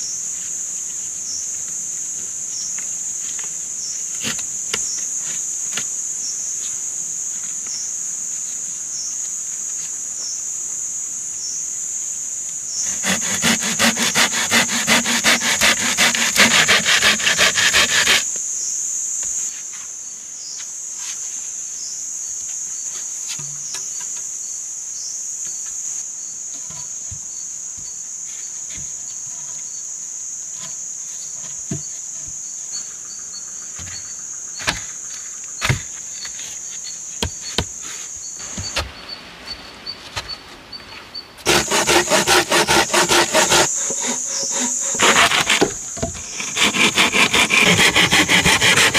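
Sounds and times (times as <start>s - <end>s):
insects buzzing: 0.0s - 48.9s
saw cutting through log: 12.8s - 18.3s, 41.5s - 48.9s.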